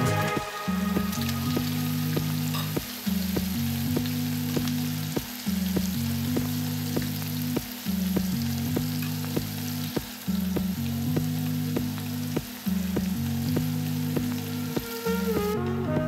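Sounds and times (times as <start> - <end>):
background music with bass: 0.0 - 16.0.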